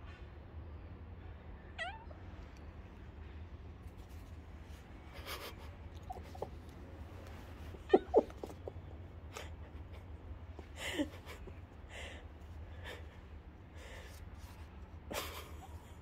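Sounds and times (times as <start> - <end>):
low background hum: 0.0 - 16.0
cat meowing: 1.8 - 2.2, 7.8 - 8.4.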